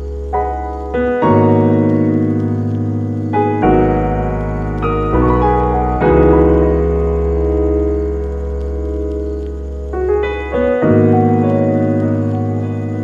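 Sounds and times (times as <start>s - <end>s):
electric piano chords: 0.0s - 13.0s
low bass: 2.3s - 10.4s.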